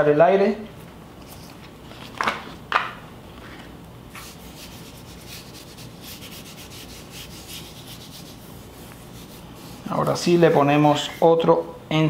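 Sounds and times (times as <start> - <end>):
hand rubbing plastic sheet: 3.3 - 10.7.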